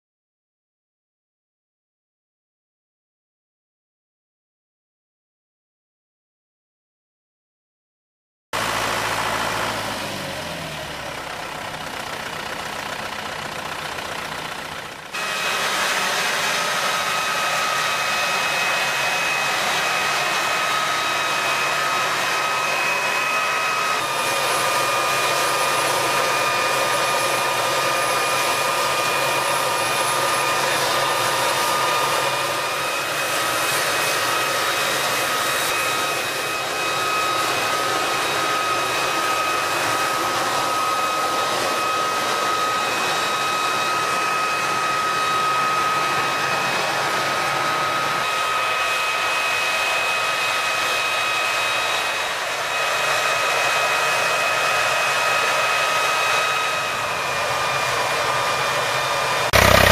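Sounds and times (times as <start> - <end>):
tractor engine running: 8.6 - 48.2, 57.7 - 59.9
high fan whine: 8.6 - 59.9.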